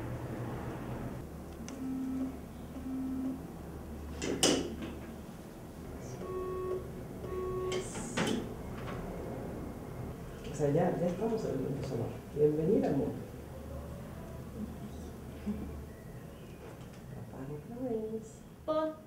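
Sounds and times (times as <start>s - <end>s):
short electronic beeps: 6.2s - 7.9s.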